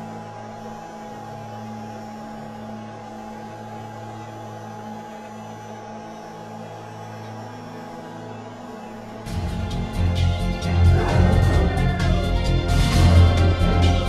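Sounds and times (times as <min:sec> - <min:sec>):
steady low hum: 0:00.0 - 0:14.0.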